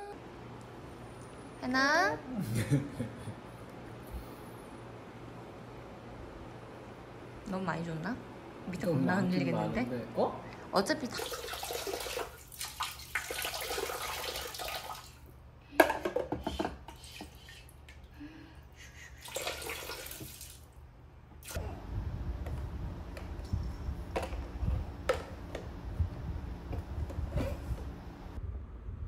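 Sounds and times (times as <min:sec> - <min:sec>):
water splashing into bathtub: 0:11.1 - 0:15.3, 0:19.2 - 0:20.8
plastic toys knocking: 0:15.8 - 0:16.8
low rumble: 0:21.6 - 0:29.0.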